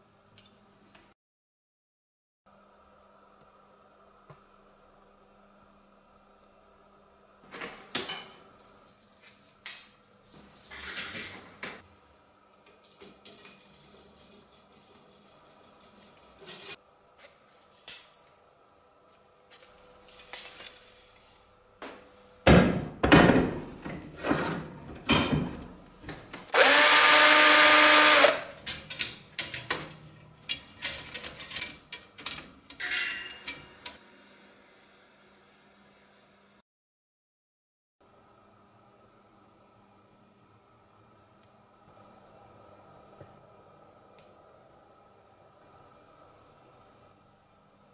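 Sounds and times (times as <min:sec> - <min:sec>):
small power tool running: 0:26.5 - 0:28.5.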